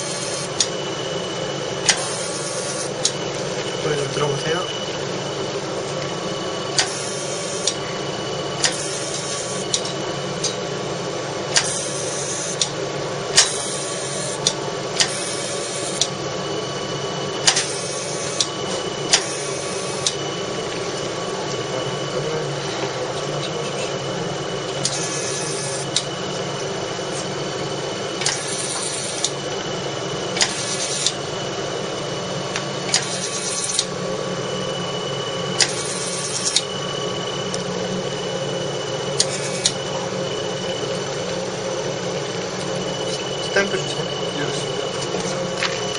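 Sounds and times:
laser machine hum: 0:00.0 - 0:45.9
laser handpiece clicks and buzz: 0:20.0 - 0:20.2.

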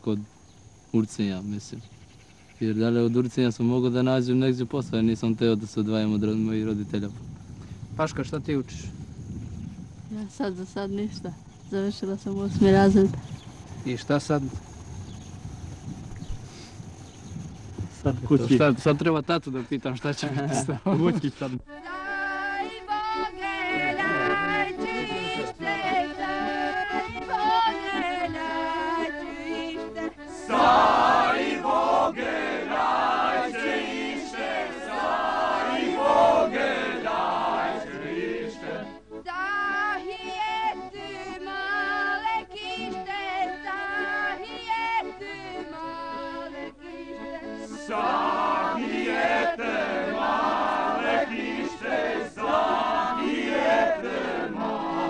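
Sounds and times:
group singing folk song: 0:21.8 - 0:55.0.

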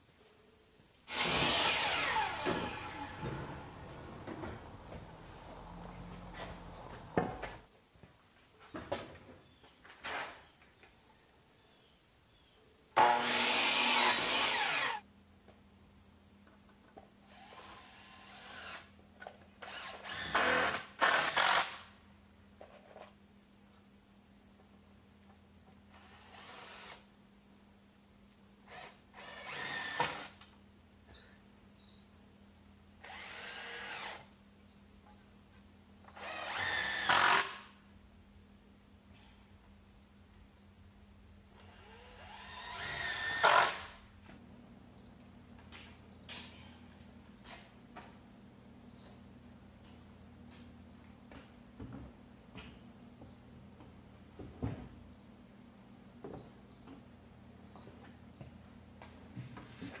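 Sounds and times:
crickets calling: 0:00.0 - 1:00.0
impact driver driving screws: 0:01.1 - 0:03.3
miter saw cutting wood: 0:01.1 - 0:03.9, 0:13.0 - 0:15.0, 0:19.6 - 0:21.8, 0:28.8 - 0:30.4, 0:33.0 - 0:34.2, 0:36.2 - 0:37.7, 0:41.8 - 0:44.0.

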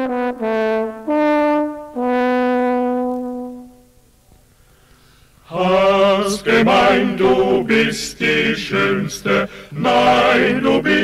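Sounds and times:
instrumental music held notes: 0:00.0 - 0:04.1.

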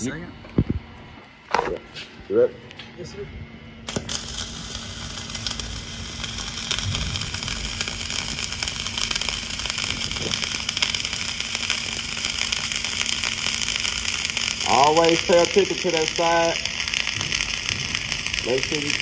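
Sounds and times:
welding arc crackling sizzle: 0:03.8 - 0:19.0
popping spatter: 0:03.9 - 0:19.0.

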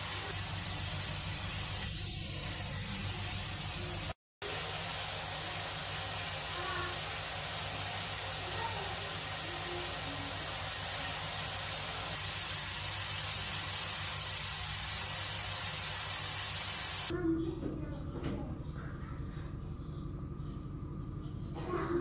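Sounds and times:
steady hiss: 0:00.0 - 0:00.4, 0:04.4 - 0:17.1.

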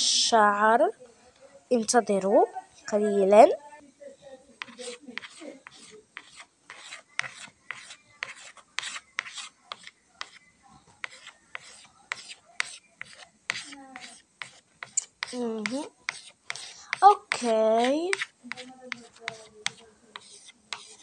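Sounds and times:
chalk scratching on chalkboard: 0:04.6 - 0:21.0.

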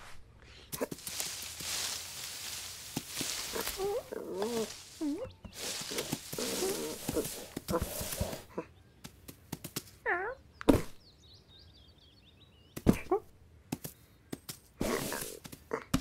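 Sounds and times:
sharp taps and knocks: 0:09.0 - 0:10.0.

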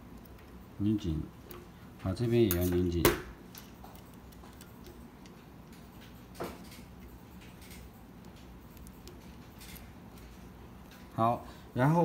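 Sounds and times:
screwdriver ticking and clicking: 0:03.8 - 0:09.9.

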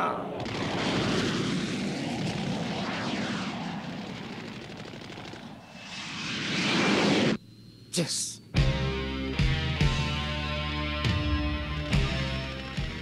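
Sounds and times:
fighter jets flying past: 0:00.0 - 0:07.4.

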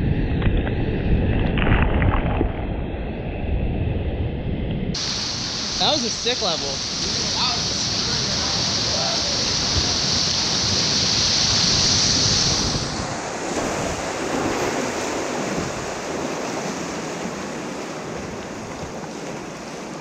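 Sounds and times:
hiss of spray: 0:05.0 - 0:13.1
river water rushing: 0:05.0 - 0:20.0.

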